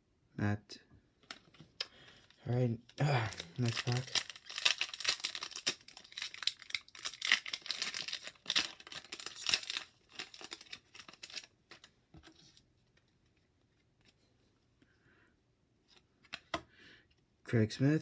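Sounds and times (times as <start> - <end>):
plastic wrapper tearing and crinkling: 2.9 - 11.9.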